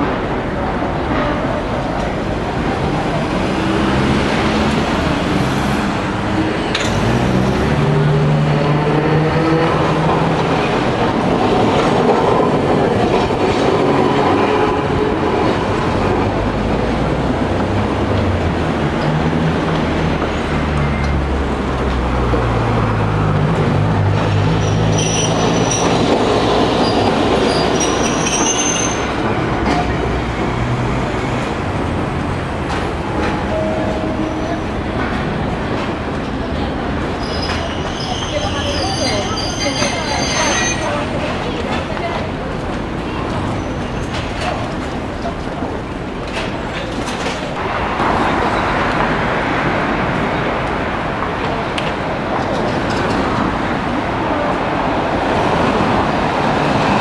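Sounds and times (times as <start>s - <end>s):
streetcar motors whining: 0.0s - 57.0s
wheel squeals: 24.5s - 26.2s, 26.8s - 29.3s, 37.2s - 41.3s.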